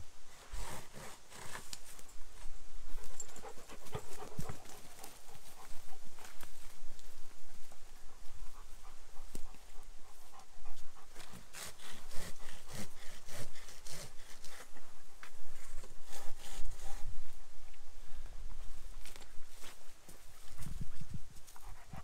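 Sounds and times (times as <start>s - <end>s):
handsaw cutting wood: 0.5s - 1.7s, 11.1s - 14.7s, 16.0s - 17.1s
dog panting: 3.1s - 6.4s, 7.8s - 14.1s, 21.5s - 22.0s.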